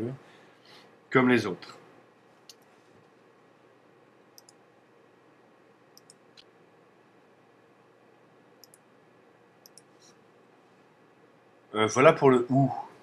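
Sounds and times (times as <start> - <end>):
faint mouse clicks: 2.4 - 3.2, 4.4 - 4.6, 5.9 - 6.5, 8.6 - 8.9, 9.6 - 10.2.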